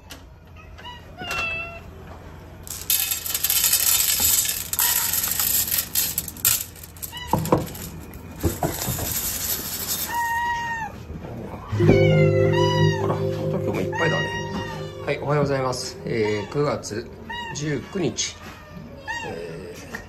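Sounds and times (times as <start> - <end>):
kibble pouring onto metal tray: 2.7 - 10.4.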